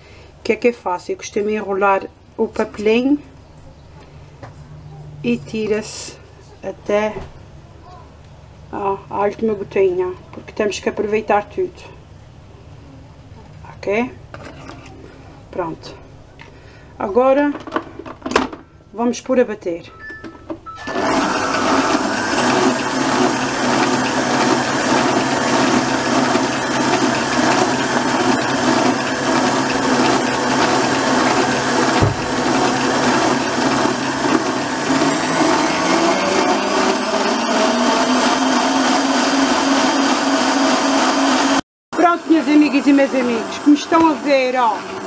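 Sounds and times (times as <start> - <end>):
stand mixer whisking cream: 20.8 - 41.6, 42.2 - 45.0.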